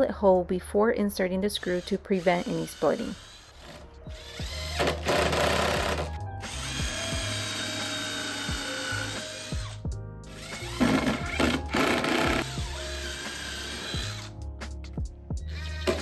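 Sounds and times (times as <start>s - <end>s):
background music: 0.0s - 16.0s
cordless drill driving screws: 1.6s - 9.8s, 10.4s - 14.3s.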